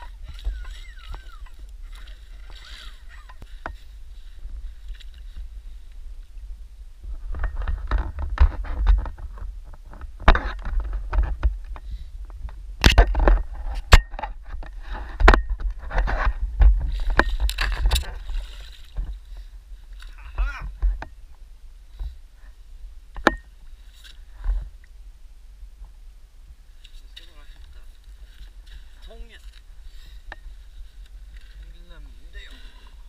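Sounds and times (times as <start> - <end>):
water splashing: 0.0 - 3.4
steady low rumble: 0.0 - 33.0.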